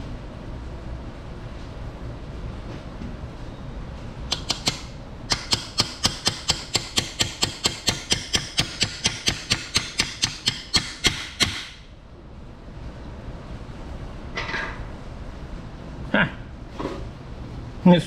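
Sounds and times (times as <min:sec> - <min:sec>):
hammer tapping metal: 0:04.3 - 0:11.8.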